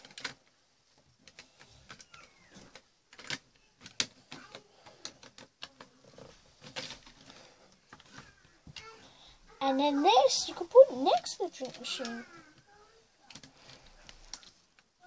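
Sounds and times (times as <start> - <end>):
plastic bricks clicking: 0.0 - 8.8, 13.2 - 15.0.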